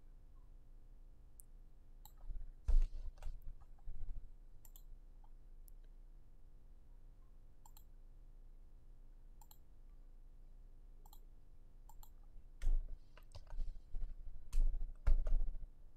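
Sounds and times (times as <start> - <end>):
computer mouse clicks: 2.0 - 3.8, 4.6 - 5.9, 7.6 - 7.9, 9.4 - 9.7, 11.0 - 11.3, 11.9 - 15.5
keyboard key presses: 14.5 - 15.5.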